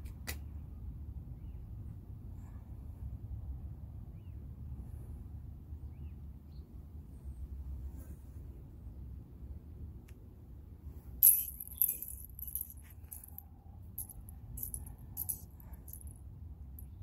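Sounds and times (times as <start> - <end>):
low steady rumble: 6.8 - 17.0
small bells jingling: 11.2 - 13.4, 14.0 - 16.2.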